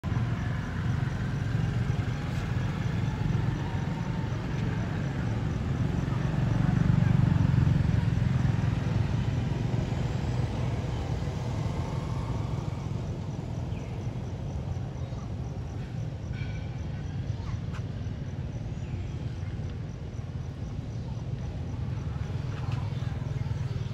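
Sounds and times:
steady low rumble: 0:19.1 - 0:23.9.

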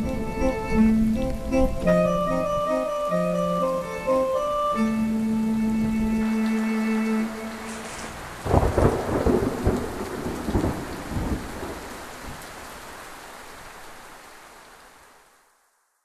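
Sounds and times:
rain hissing: 0:00.0 - 0:16.0
thunder rumbling: 0:04.9 - 0:12.6.

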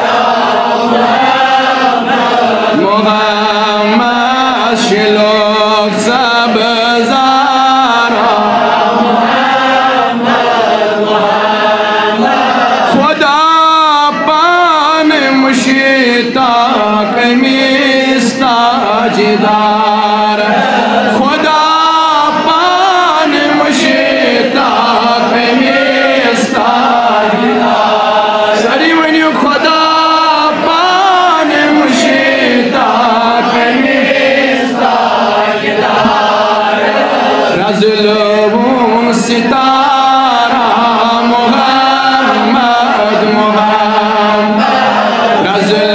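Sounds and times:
man singing devotional song: 0:00.0 - 0:45.9.

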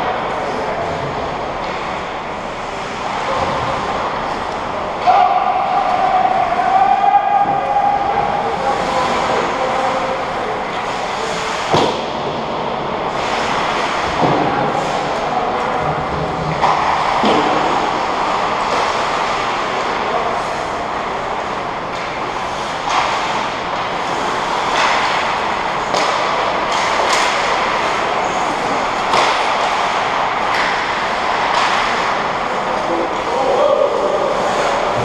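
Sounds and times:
hockey sticks and puck clacking: 0:00.0 - 0:35.0
skate blades on ice: 0:22.0 - 0:35.0.

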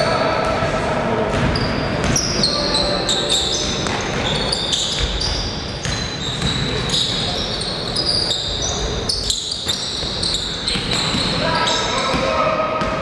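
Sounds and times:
murmur of voices: 0:00.0 - 0:05.1
sneakers squeaking on court: 0:01.3 - 0:13.0
basketball bouncing on floor: 0:04.9 - 0:06.8, 0:10.7 - 0:11.4.

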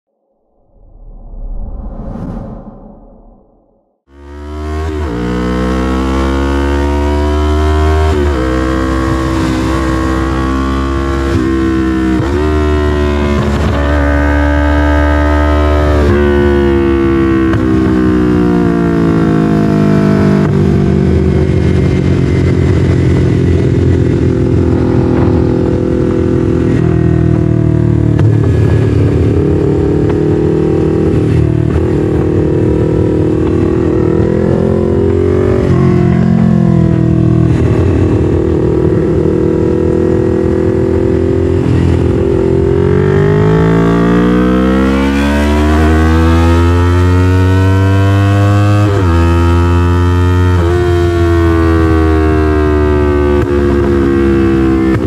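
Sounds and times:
motorcycle engine revving: 0:04.1 - 0:55.0.

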